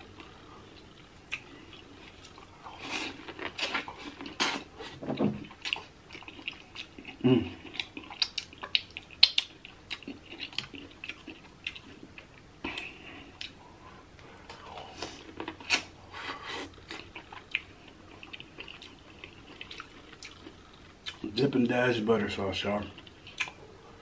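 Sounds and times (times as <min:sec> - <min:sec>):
man chewing: 0:00.0 - 0:21.3, 0:22.9 - 0:24.0.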